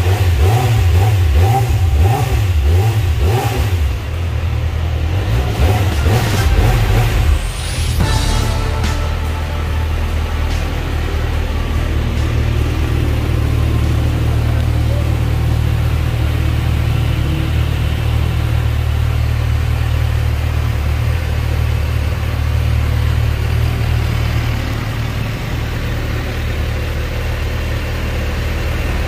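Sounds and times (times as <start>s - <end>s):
motorcycle engine idling: 9.0s - 29.0s.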